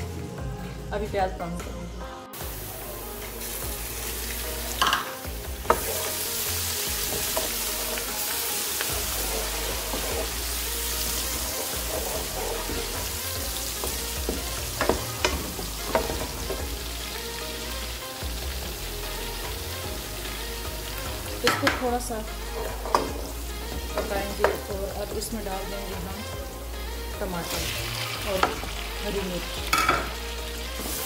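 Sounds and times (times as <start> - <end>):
onions sizzling in hot oil: 2.4 - 31.0
utensils knocking metal pan: 4.8 - 5.9, 29.7 - 30.2
spatula stirring: 8.8 - 16.7.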